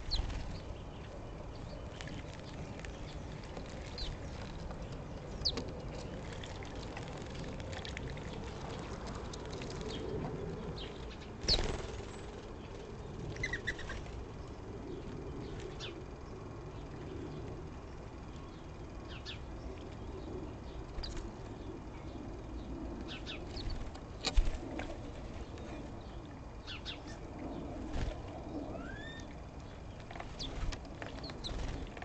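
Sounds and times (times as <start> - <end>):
birds splashing and wing-flapping: 11.4 - 12.6.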